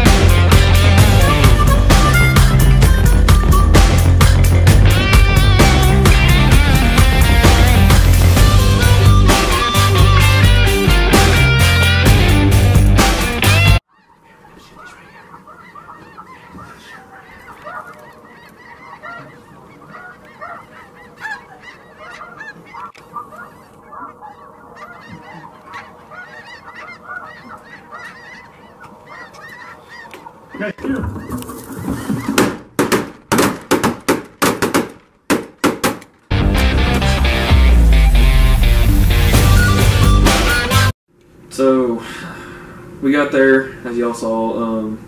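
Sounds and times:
snow geese calling: 0:00.0 - 0:12.1, 0:13.4 - 0:32.5.

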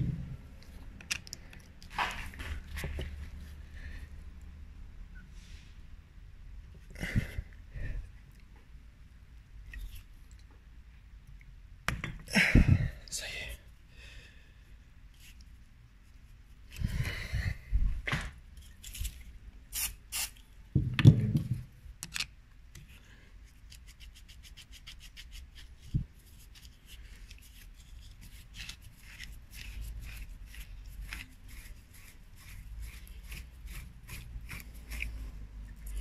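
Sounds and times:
screw clicks and creaks: 0:01.0 - 0:02.0, 0:22.0 - 0:22.9.

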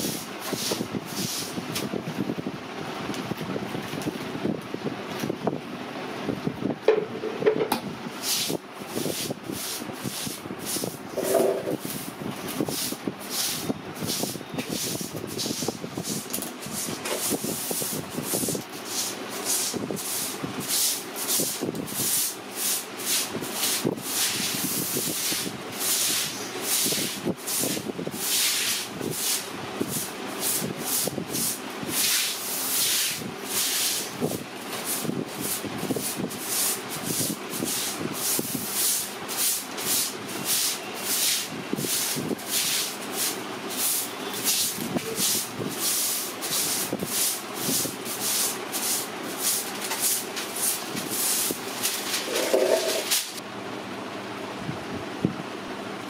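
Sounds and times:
spray gun hissing bursts: 0:12.7 - 0:53.4.

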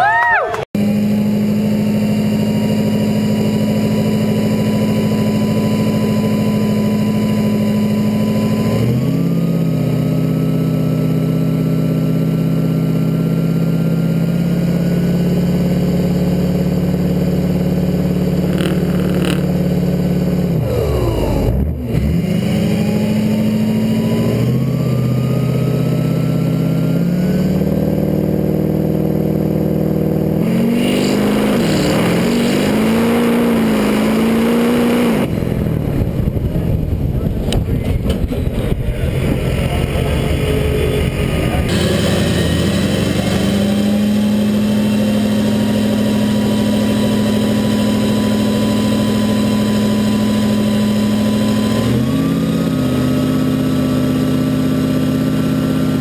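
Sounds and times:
diesel truck engine revving: 0:00.6 - 0:56.0
high whine: 0:12.5 - 0:52.2.

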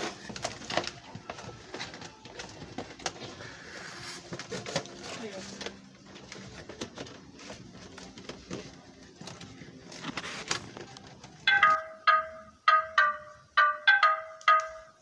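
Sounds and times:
cardboard packaging rustling: 0:00.0 - 0:11.4
plucked melody music: 0:11.5 - 0:15.0.

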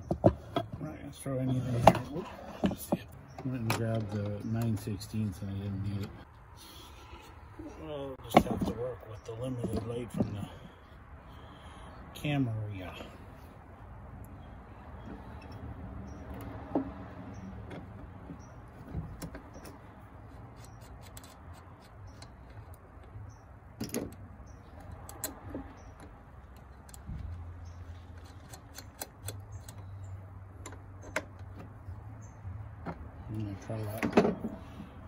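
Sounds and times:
small metallic clicks and taps: 0:20.6 - 0:31.7.

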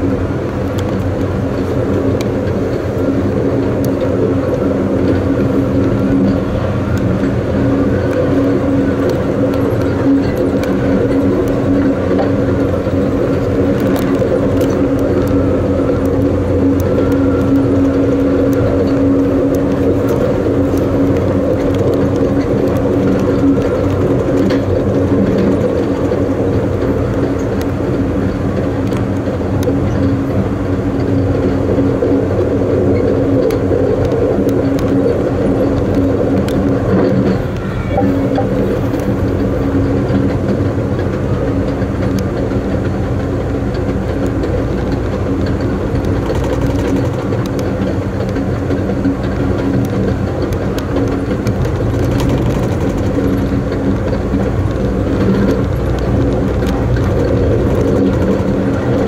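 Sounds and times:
droning hum: 0:00.0 - 0:59.0
train wheels rumbling on rails: 0:00.0 - 0:59.0
faint clicks: 0:43.8 - 0:59.0.

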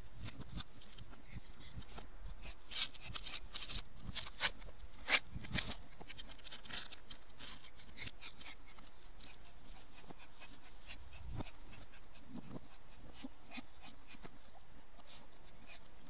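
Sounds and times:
claws scrabbling on plastic and wood: 0:00.1 - 0:11.8.

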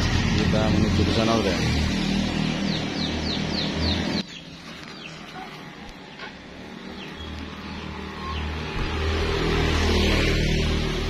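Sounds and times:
bird chirping: 0:02.2 - 0:08.8.

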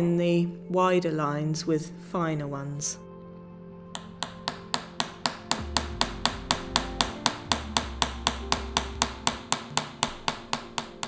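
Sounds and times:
hammer tapping metal tool: 0:04.0 - 0:11.0.

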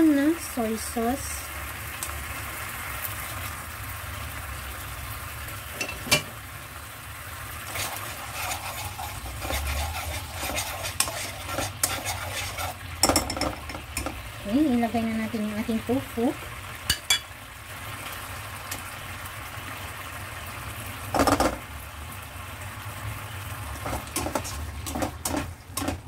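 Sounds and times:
sauce simmering and sizzling: 0:00.0 - 0:26.0
plastic spoon scraping pan: 0:07.7 - 0:12.9, 0:23.8 - 0:26.0.

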